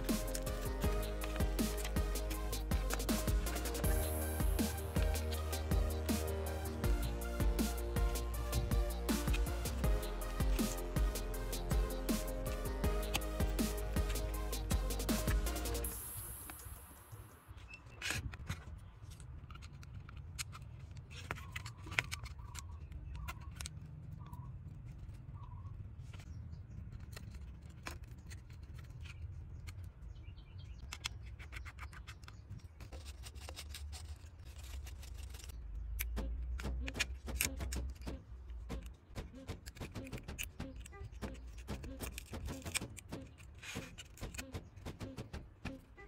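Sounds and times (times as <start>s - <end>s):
hand tools clicking and scraping: 0.0s - 16.9s, 30.9s - 46.0s.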